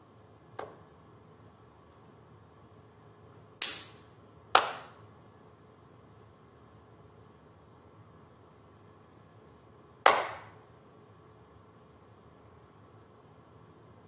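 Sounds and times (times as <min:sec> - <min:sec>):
hand claps in a hall: 0:03.6 - 0:05.0, 0:10.0 - 0:10.6.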